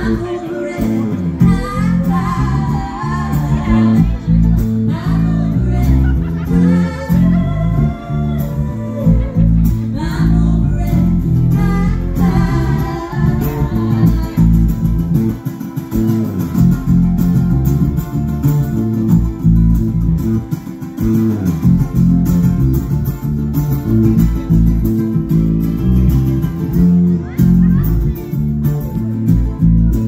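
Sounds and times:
person singing: 0.0s - 15.4s
acoustic guitars strumming: 0.0s - 30.0s
heavy low bass: 0.0s - 30.0s.

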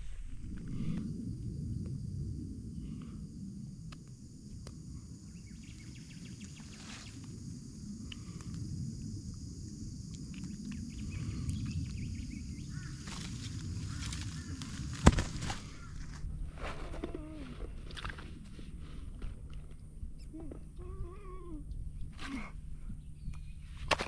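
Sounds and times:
steady low rumble: 0.0s - 23.9s
faint bird calls: 10.8s - 17.9s.

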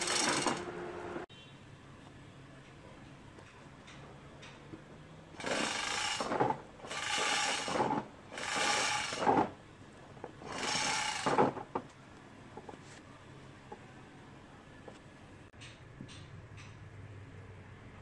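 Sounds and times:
hand tool rasping: 6.9s - 9.4s, 10.4s - 11.3s.

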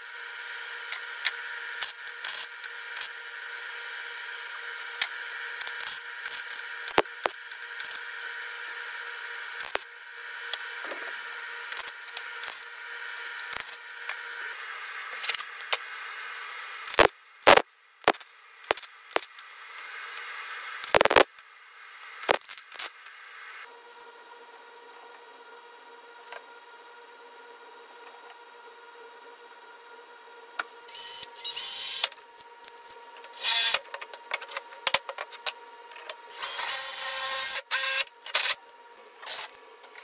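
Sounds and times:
steady hum: 16.6s - 19.7s, 20.6s - 28.0s.

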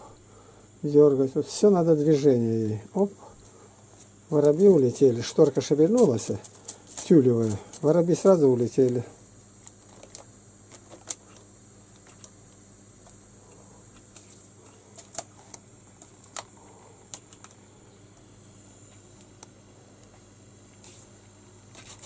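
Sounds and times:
kitten rustling newspapers: 4.3s - 8.2s, 21.7s - 22.0s.

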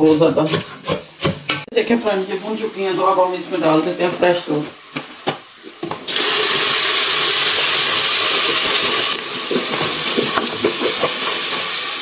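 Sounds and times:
milk hissing in hot pot: 4.9s - 12.0s.

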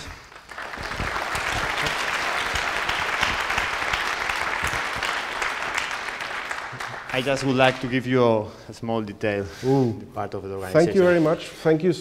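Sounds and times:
audience clapping: 0.0s - 8.3s.

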